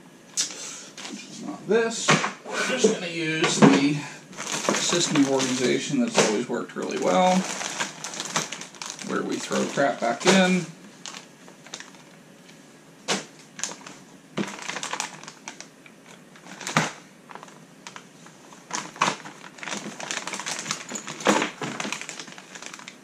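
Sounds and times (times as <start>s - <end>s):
plastic bags crinkling: 4.3s - 12.4s, 13.2s - 23.0s.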